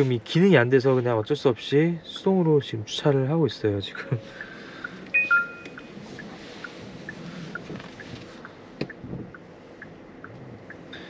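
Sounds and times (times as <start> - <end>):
car cabin noise: 0.0 - 11.0
two-pitch electronic chime ticks: 5.1 - 5.9.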